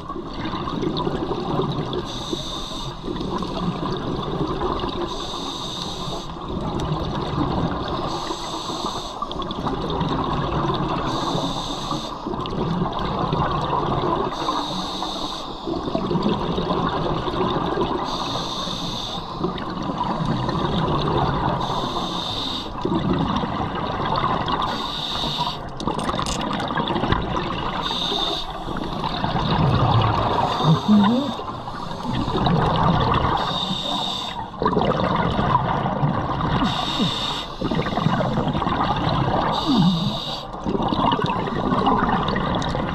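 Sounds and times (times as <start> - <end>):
underwater rumble: 0.0 - 14.5, 19.2 - 22.2, 22.8 - 42.9
bubbling exhaled air underwater: 12.2 - 14.5, 15.6 - 18.3, 19.3 - 22.1, 22.8 - 42.9.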